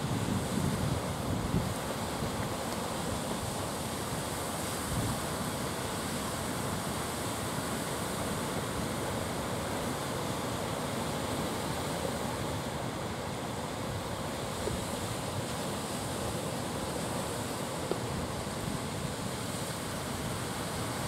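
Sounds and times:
wind on microphone: 0.0 - 2.6, 4.8 - 5.5
rough sea surf breaking: 0.0 - 21.0.

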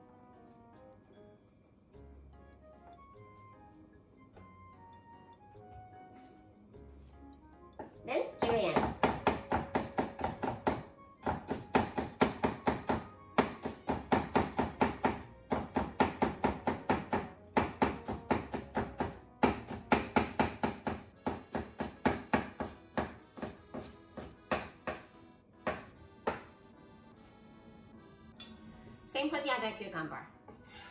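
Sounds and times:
knife chopping on wooden board: 7.8 - 25.1, 25.7 - 26.5.

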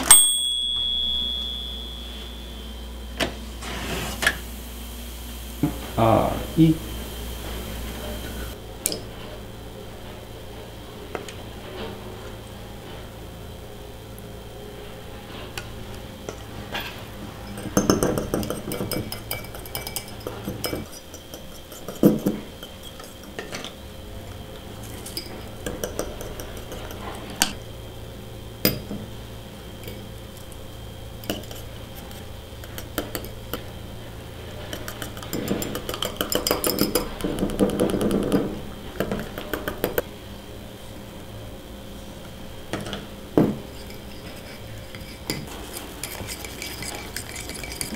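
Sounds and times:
whisk clinking against mug: 0.0 - 2.7, 17.4 - 23.7, 24.8 - 27.6, 31.2 - 33.6, 34.6 - 38.4, 43.7 - 47.9
whisk knocking on mug: 17.6 - 23.5, 34.7 - 40.0, 45.3 - 47.9.

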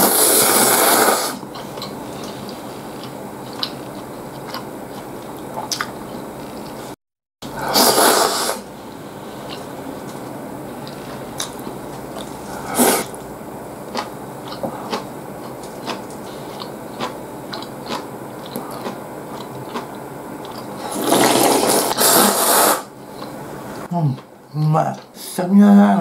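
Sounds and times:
person slurping noodles: 0.0 - 1.4, 7.6 - 8.7, 12.4 - 13.2, 20.8 - 22.9
chewing: 1.4 - 7.0, 9.4 - 13.3, 13.9 - 22.1, 23.1 - 23.4.

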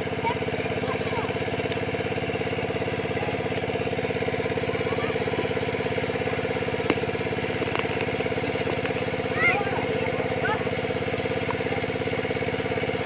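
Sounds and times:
engine-driven water pump running: 0.0 - 13.0.

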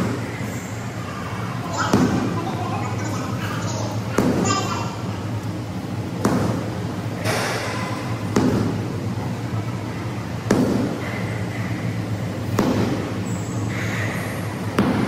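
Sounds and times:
steady low hum: 0.0 - 15.0
rubber ball slapping into hands: 6.2 - 6.7, 10.4 - 11.0.

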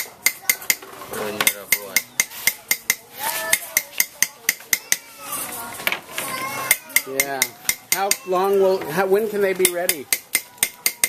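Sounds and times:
hammer tapping on metal: 0.0 - 5.2, 6.7 - 8.9, 9.5 - 11.0.

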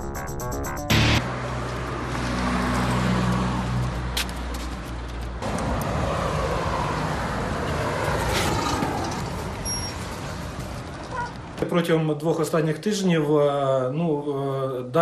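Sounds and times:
vehicle engine hum: 0.9 - 11.6
rushing outdoor noise: 0.9 - 12.6.

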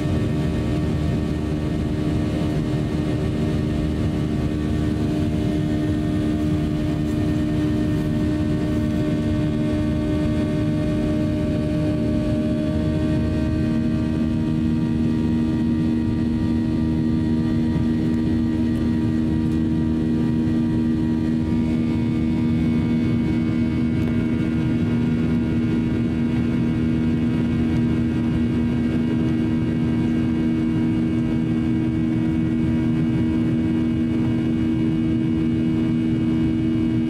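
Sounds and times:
jet engine cabin drone: 0.0 - 37.0.

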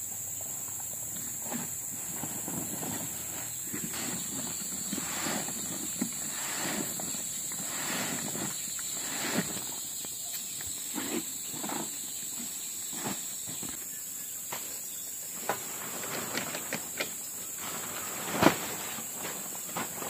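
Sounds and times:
insects droning: 0.0 - 20.0
rustling: 0.4 - 13.8.

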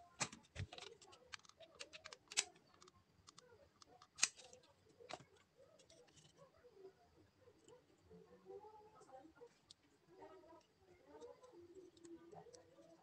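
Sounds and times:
plastic parts clicking and knocking: 0.1 - 6.4.

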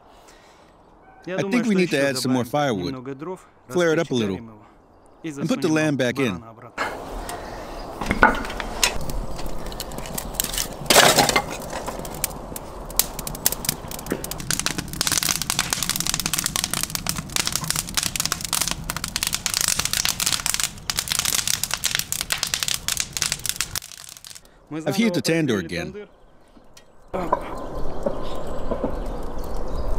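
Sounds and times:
firewood crackling and popping: 6.8 - 25.3, 26.1 - 29.9.

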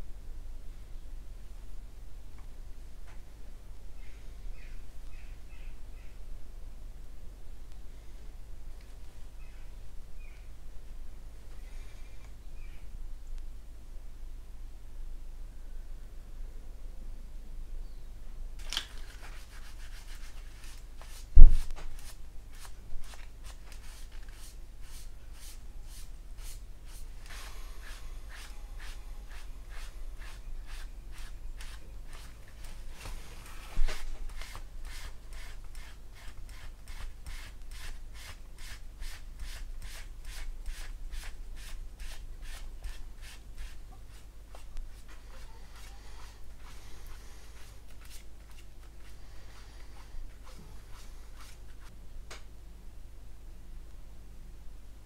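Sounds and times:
paper towel rubbing on plastic: 19.1 - 49.1.

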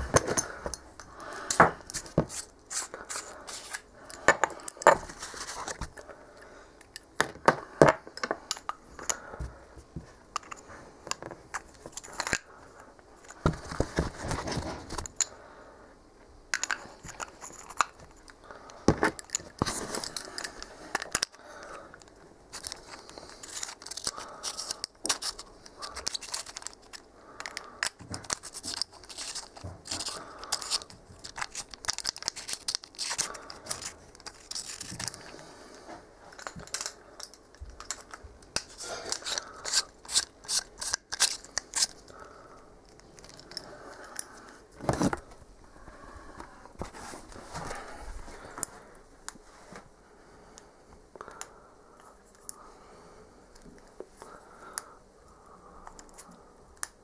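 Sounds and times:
metal parts clicking and rattling: 22.0 - 35.3, 36.3 - 42.1, 42.9 - 44.4.

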